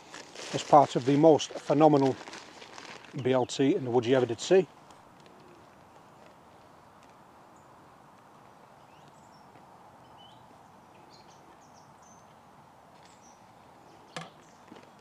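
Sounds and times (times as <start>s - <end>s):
faint birds chirping: 3.2s - 15.0s.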